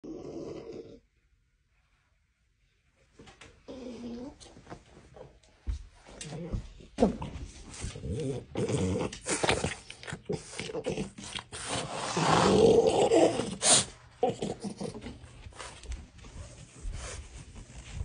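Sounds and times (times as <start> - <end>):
dog vocalising: 8.1 - 15.2.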